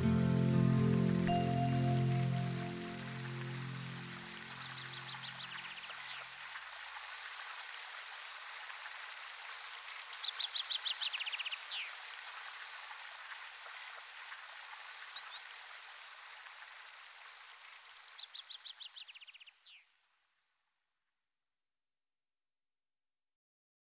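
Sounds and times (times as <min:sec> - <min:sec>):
songbird singing: 0:00.0 - 0:06.3, 0:10.2 - 0:11.9, 0:18.2 - 0:19.9
running water: 0:00.0 - 0:19.8
bird two-note call: 0:01.2 - 0:04.2.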